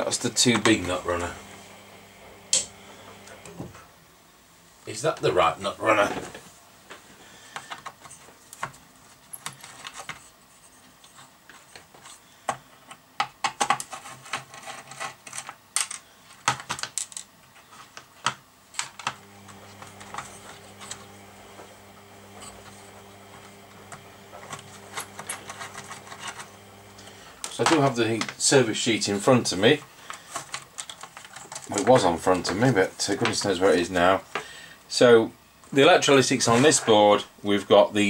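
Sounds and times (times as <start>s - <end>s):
low steady hum: 0.0s - 4.5s, 19.2s - 28.3s.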